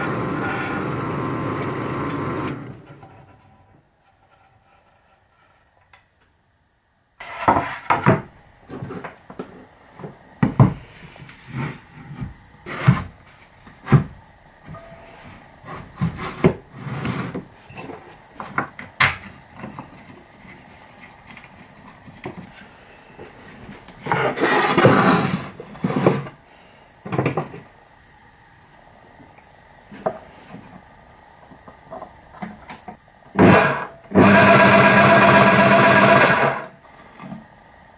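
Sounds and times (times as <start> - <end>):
wood scraping on wood: 7.2 - 8.1, 10.9 - 14.0, 15.6 - 18.0, 24.0 - 26.4.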